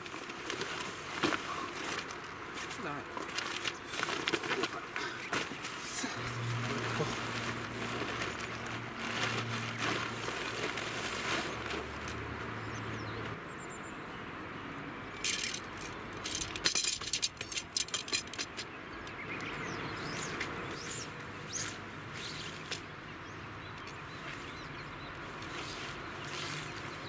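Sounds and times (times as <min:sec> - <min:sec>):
nylon tent fabric rustling: 0:00.0 - 0:12.6, 0:25.2 - 0:27.0
tent poles clinking and clacking: 0:00.0 - 0:13.4, 0:15.1 - 0:19.6.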